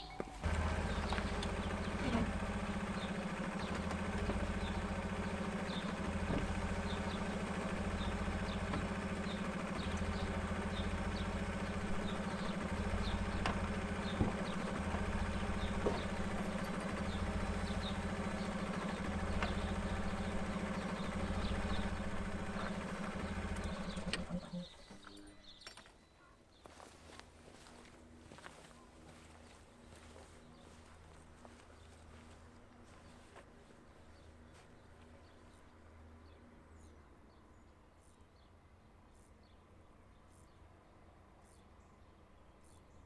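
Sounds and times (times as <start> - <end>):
car engine idling: 0.4 - 25.2.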